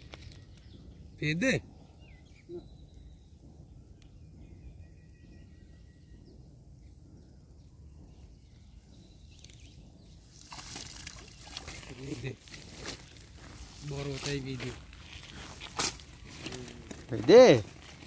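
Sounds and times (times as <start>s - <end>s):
faint bird chirps: 0.0s - 10.4s
steady low rumble: 0.0s - 18.0s
net splashing out of water: 10.4s - 12.0s.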